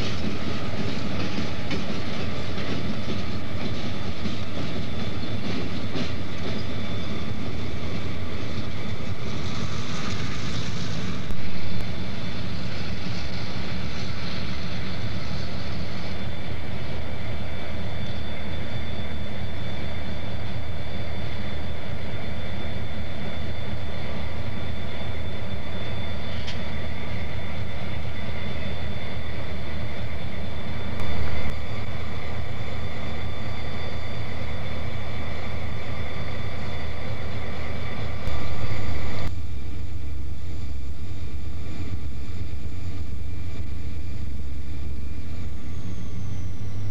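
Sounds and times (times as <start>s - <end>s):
diesel locomotives rumbling: 0.0s - 46.9s
hiss: 8.4s - 16.2s.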